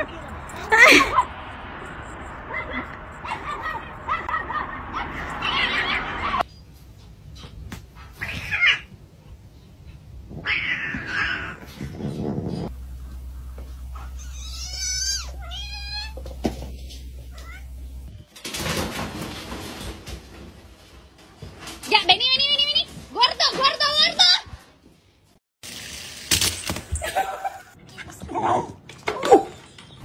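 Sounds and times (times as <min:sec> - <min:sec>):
cats meowing: 0:08.1 - 0:08.9, 0:10.3 - 0:11.9, 0:14.0 - 0:17.8
steady low hum: 0:12.6 - 0:18.1.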